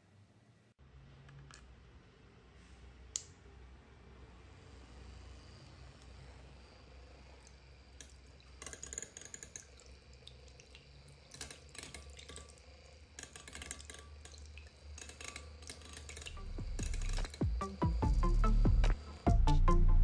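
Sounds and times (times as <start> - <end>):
whisk splashing egg: 7.4 - 17.5
whisk wires ticking on bowl: 7.4 - 19.0
mixer motor hum: 9.5 - 19.6.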